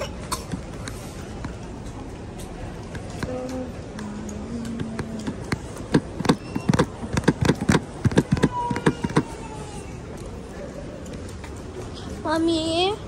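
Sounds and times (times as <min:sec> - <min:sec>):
sharp knocks or taps: 0:04.8 - 0:09.3.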